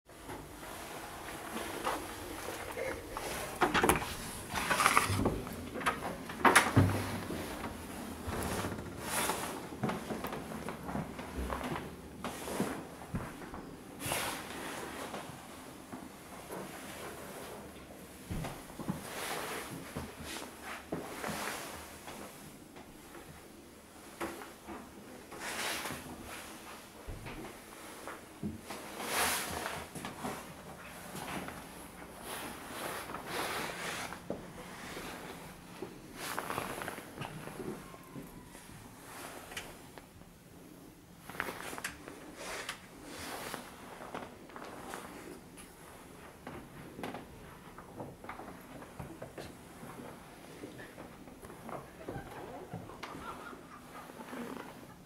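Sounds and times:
door being handled: 0:03.5 - 0:07.1.

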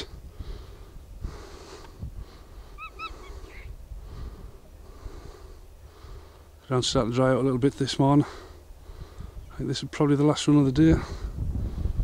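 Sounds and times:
low wind rumble: 0:00.0 - 0:12.0
soft breathing: 0:00.1 - 0:06.6, 0:08.2 - 0:09.5.

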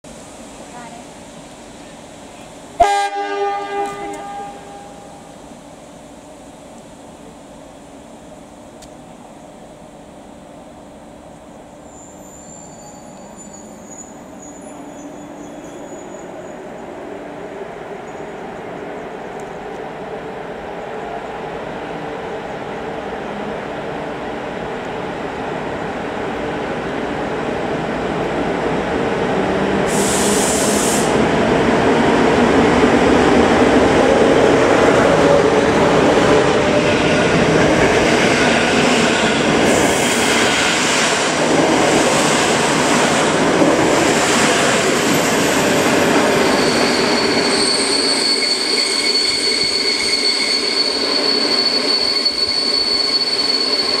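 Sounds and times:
electric locomotive passing: 0:00.2 - 0:54.0
train carriages rumbling past: 0:11.7 - 0:54.0
high-pitched wheel squeal: 0:11.8 - 0:16.6, 0:46.1 - 0:54.0.

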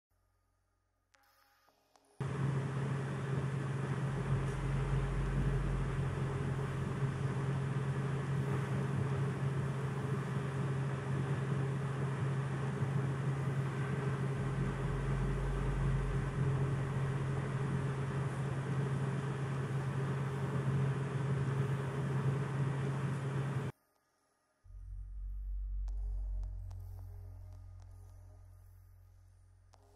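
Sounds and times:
deep rumble: 0:02.2 - 0:21.8, 0:24.7 - 0:29.9
steady low hum: 0:02.2 - 0:23.8, 0:24.7 - 0:29.9.

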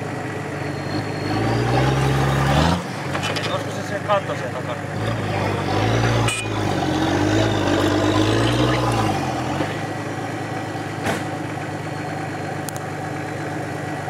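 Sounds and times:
off-road vehicle engine: 0:00.0 - 0:14.0.

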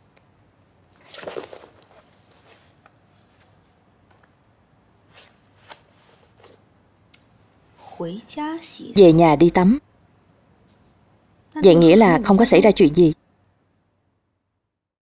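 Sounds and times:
soft rustle of book: 0:00.8 - 0:07.6, 0:10.6 - 0:11.1.

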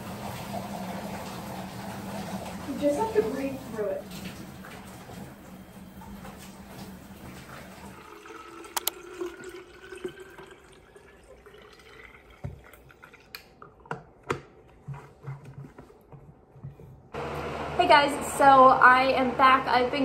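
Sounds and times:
water pouring into bottle: 0:07.9 - 0:13.9.

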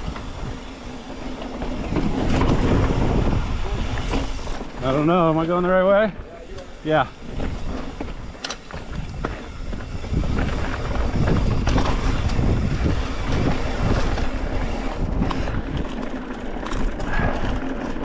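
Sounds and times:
bike tyres rumbling on rock: 0:00.0 - 0:18.0
wind on microphone: 0:01.6 - 0:04.7, 0:07.2 - 0:16.1.

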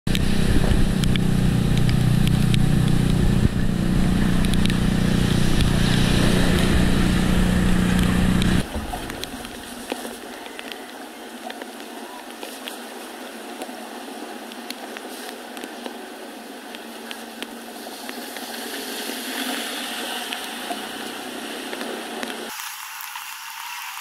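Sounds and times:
low motor hum: 0:00.1 - 0:10.6.

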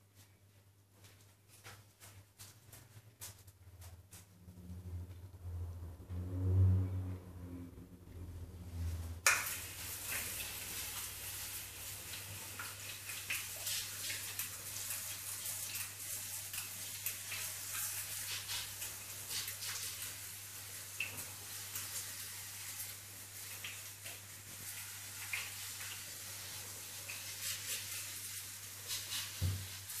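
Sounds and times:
spray ticks and spatters: 0:09.2 - 0:30.0.

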